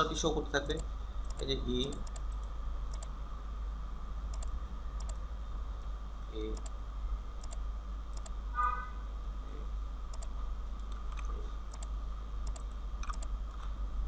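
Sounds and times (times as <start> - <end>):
steady low hum: 0.0 - 14.0
computer mouse clicking: 0.7 - 3.1, 4.3 - 5.2, 7.4 - 8.4, 10.1 - 13.7.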